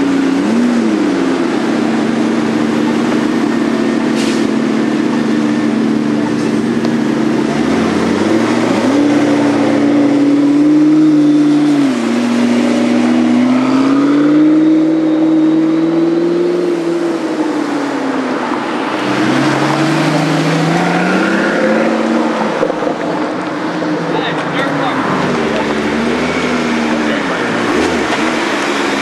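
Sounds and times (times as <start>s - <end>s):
car engines accelerating hard: 0.0s - 29.0s.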